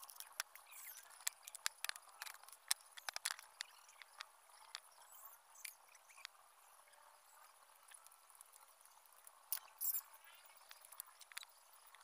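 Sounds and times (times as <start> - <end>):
bamboo pieces clicking on table: 0.0 - 4.8.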